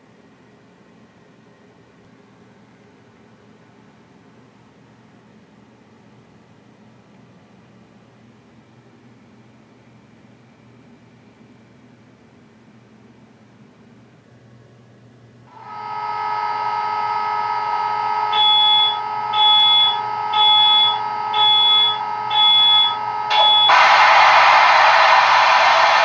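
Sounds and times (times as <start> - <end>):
steady electric whine: 15.5 - 26.0
high beeps: 18.4 - 23.9.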